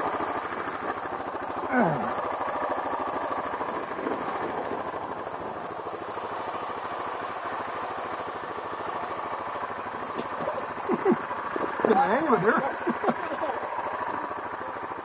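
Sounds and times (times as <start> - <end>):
atv engine running at low revs: 0.0 - 15.0.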